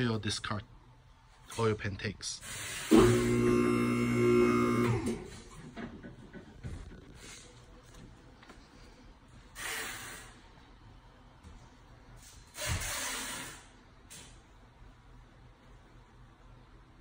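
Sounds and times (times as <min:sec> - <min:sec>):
hydraulic lift hissing: 0:02.4 - 0:03.4, 0:09.5 - 0:10.4.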